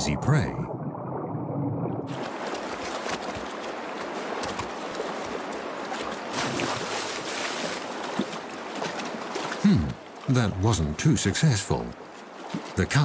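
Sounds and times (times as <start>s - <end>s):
splashing in water: 2.1s - 10.3s
stream water rushing: 2.1s - 13.0s.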